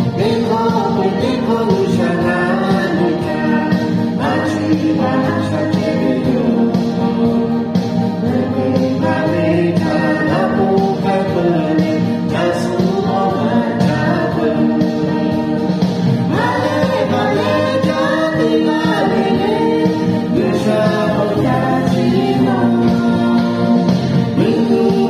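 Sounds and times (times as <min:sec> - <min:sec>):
person singing with accompaniment: 0:00.0 - 0:25.0.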